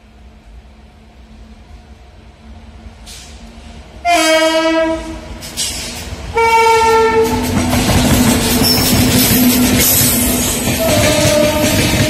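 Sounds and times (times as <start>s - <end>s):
train running past on track: 0.0s - 12.0s
locomotive air horn blasts: 4.0s - 5.3s, 6.3s - 7.5s, 8.6s - 12.0s.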